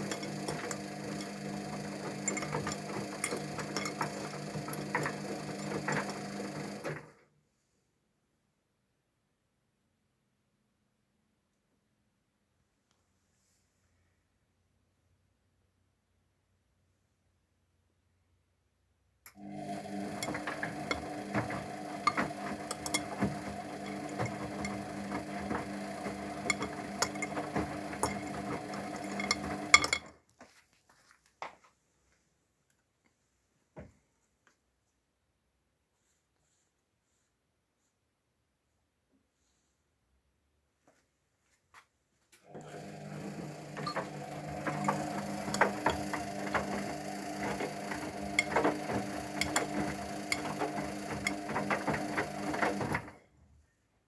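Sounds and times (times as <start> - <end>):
washing machine motor hum: 0.0 - 7.2, 19.3 - 30.1, 42.4 - 53.3
clicks and knocks: 20.1 - 30.2, 43.8 - 53.0.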